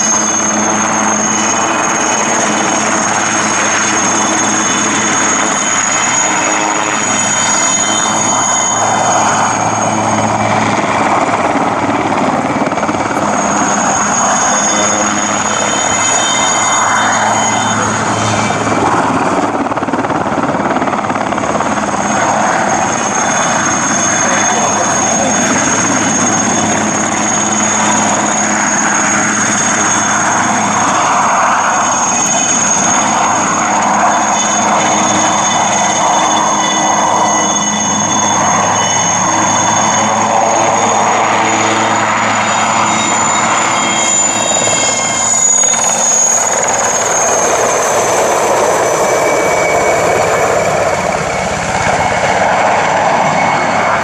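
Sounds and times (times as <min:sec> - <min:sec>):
helicopter rotor rush: 0:00.0 - 0:54.0
helicopter turbine whine: 0:00.0 - 0:54.0.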